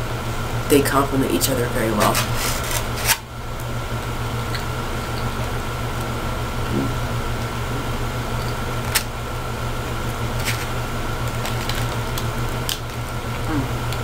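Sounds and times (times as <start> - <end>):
low room hum: 0.0 - 14.0
plastic fork scraping styrofoam: 2.0 - 3.2.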